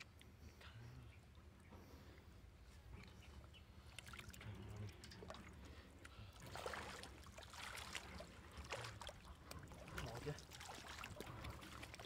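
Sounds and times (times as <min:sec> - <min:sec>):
muddy water splashing: 0:03.8 - 0:12.0.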